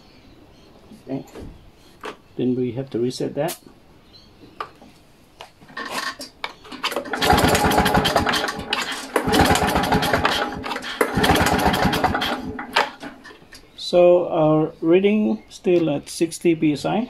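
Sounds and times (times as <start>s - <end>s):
mower engine cranked by pull-starter: 5.7s - 13.6s.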